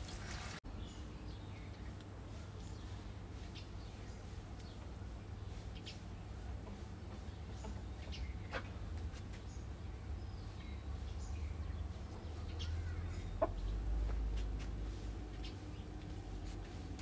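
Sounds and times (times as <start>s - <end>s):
chicken clucking: 6.5s - 8.8s, 12.2s - 14.3s.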